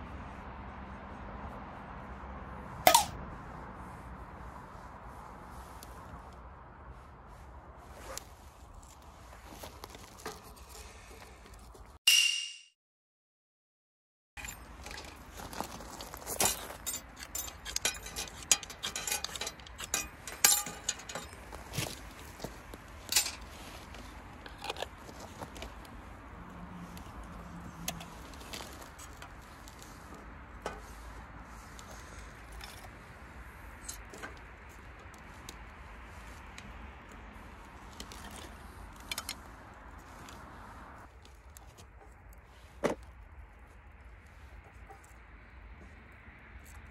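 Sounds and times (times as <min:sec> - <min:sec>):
kindling sticks clinking on metal: 0:02.9 - 0:03.2, 0:14.4 - 0:25.7.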